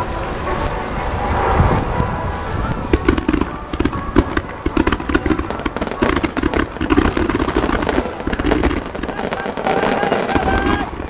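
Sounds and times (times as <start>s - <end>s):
continuous low rumble: 0.0s - 11.0s
fireworks bangs and crackles: 0.0s - 11.0s.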